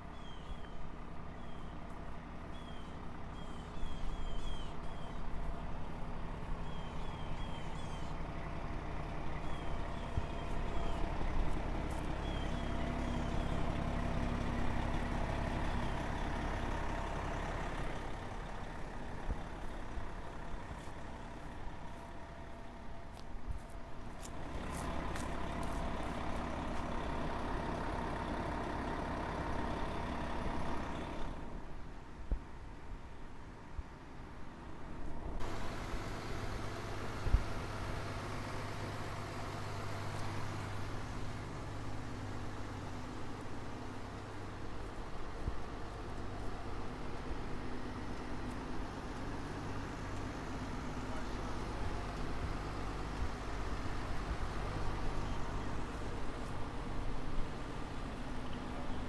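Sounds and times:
diesel engine rumbling: 0.0s - 59.0s.

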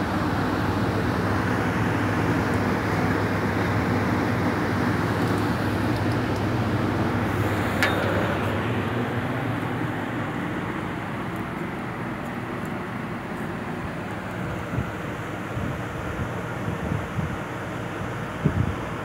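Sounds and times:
ventilation fan hum: 0.0s - 19.0s
rushing air: 5.1s - 10.7s.

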